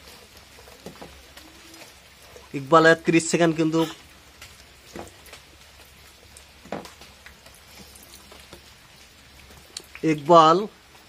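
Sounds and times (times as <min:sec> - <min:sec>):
boy chewing: 0:03.7 - 0:10.0.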